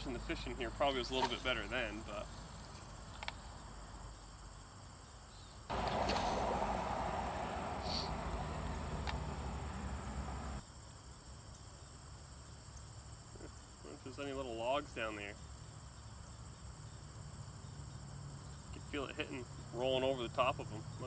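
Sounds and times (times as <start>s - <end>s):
crickets chirring: 0.0s - 21.0s
loud rush of noise: 5.7s - 10.6s.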